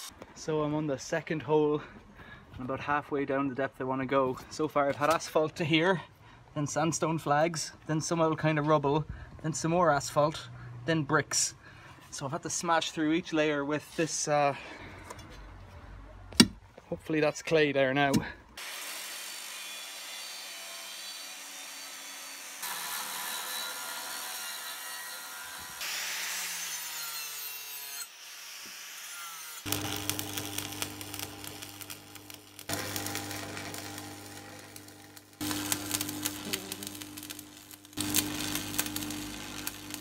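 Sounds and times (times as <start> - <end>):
angle grinder cutting steel: 18.6 - 40.0
welding arc crackling: 29.6 - 40.0
low electrical hum: 29.7 - 40.0.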